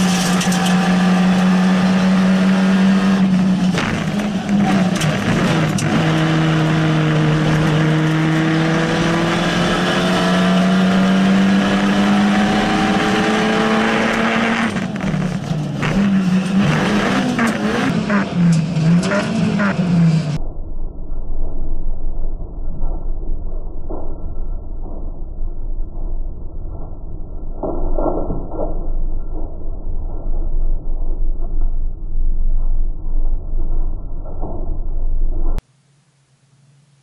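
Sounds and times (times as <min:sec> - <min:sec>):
car engine revving: 0:00.0 - 0:20.4.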